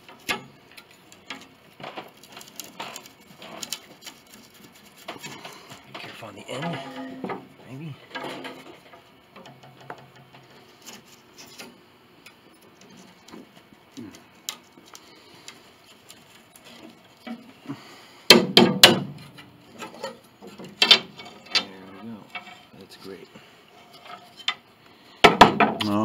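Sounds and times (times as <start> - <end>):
small wooden clicks: 0.0 - 5.7, 12.3 - 17.5, 18.3 - 21.7
loud sharp wooden knocks: 18.3 - 19.2, 25.2 - 25.9.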